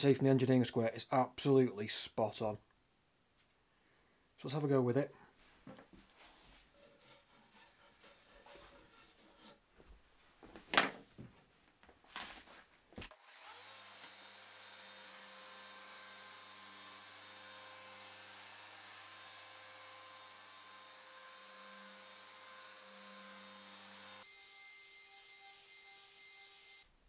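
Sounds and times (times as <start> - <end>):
orbital sander running: 13.2 - 24.3.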